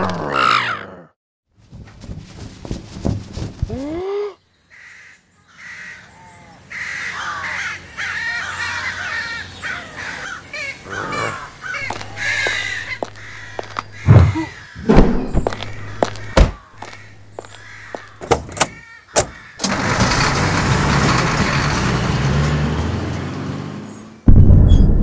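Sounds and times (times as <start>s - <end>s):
heavy thumps: 1.6s - 3.9s, 11.8s - 22.3s
crows cawing: 4.7s - 19.6s.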